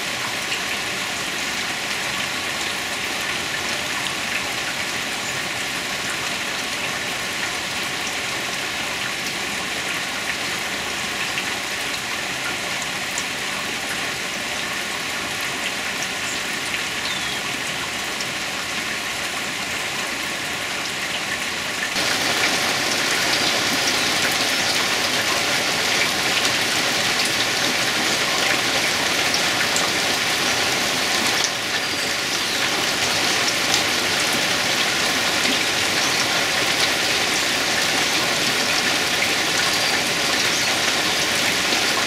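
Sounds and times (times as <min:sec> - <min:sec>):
rain on foliage: 0:00.0 - 0:42.0
raindrops ticking: 0:22.0 - 0:42.0.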